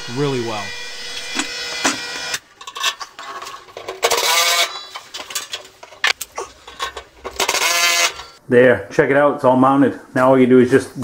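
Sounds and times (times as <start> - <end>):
power tool whirring: 0.0 - 2.4, 4.0 - 4.9, 7.4 - 8.4.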